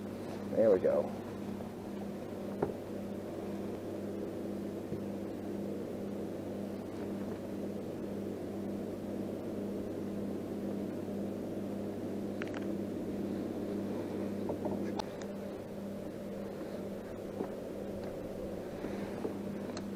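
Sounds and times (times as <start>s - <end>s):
low motor hum: 0.0s - 19.9s.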